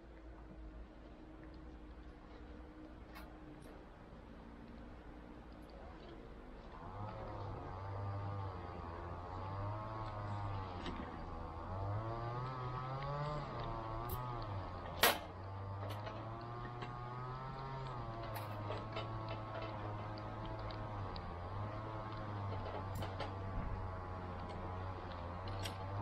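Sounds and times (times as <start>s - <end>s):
motor engine running: 6.6s - 26.0s.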